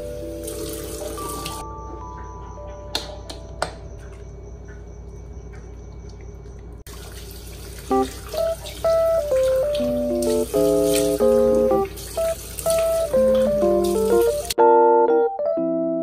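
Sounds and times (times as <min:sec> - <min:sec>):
water dripping into washbasin: 0:00.0 - 0:02.3, 0:02.9 - 0:14.6
soft background music: 0:00.0 - 0:04.2, 0:07.9 - 0:16.0.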